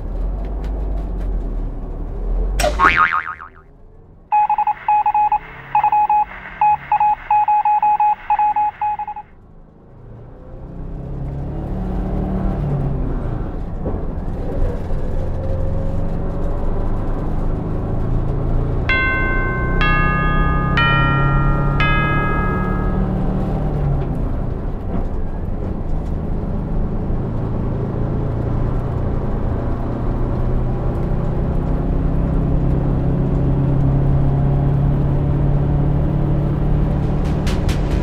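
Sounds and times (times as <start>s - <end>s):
bus rumbling: 0.0s - 2.8s, 9.8s - 38.0s
phone electronic beeping: 4.3s - 9.3s
synth music notes: 18.9s - 23.6s.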